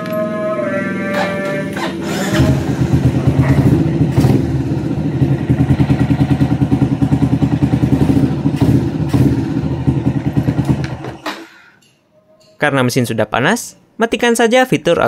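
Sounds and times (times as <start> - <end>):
scooter engine idling: 1.0 - 11.3.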